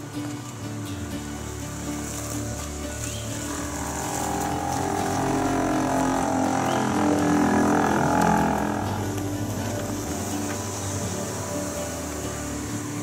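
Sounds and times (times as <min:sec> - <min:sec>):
utility vehicle driving past: 0:00.0 - 0:13.0.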